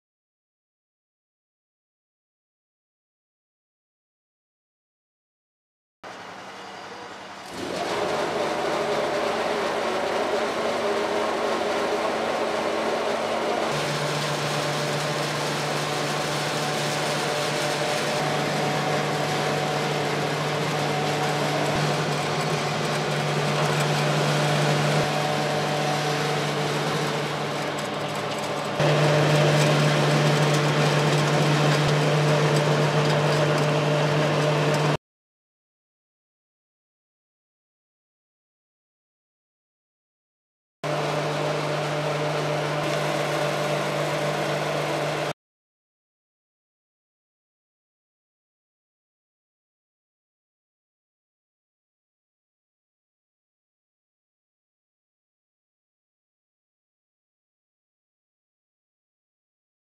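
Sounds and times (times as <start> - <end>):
pellet mill motor humming: 6.1 - 35.0, 40.8 - 45.4.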